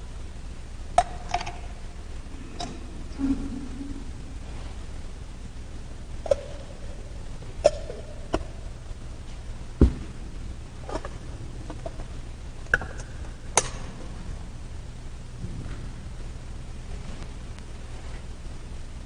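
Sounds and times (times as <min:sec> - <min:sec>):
steady low hum: 0:00.0 - 0:19.0
dull thump: 0:09.8 - 0:10.2.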